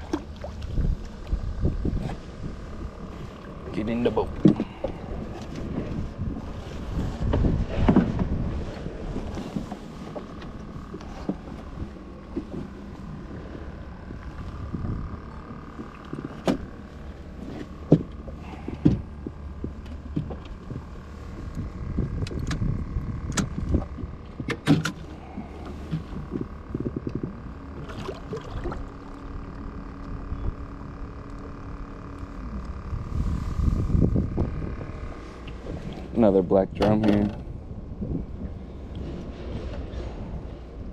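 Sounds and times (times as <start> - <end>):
faint steady hum: 0.0 - 40.9
knocks and rattles in boat: 0.0 - 40.9.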